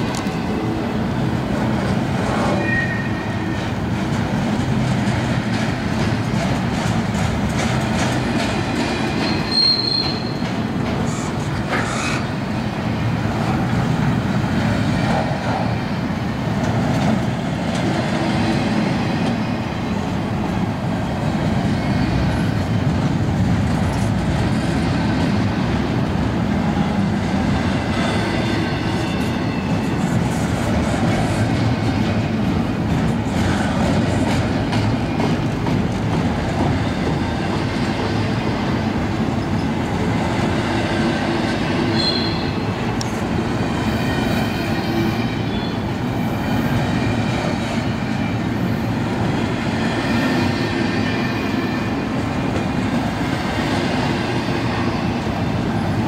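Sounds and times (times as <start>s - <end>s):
freight train wheels rattling: 0.0s - 56.0s
high wheel squeal: 2.5s - 3.4s, 9.2s - 10.5s, 41.9s - 42.8s, 44.5s - 45.8s.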